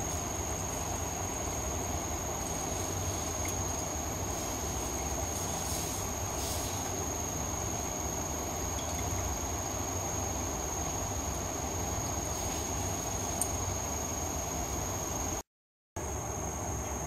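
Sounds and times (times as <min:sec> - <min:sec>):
room hum and hiss: 0:00.0 - 0:15.4, 0:16.0 - 0:17.0.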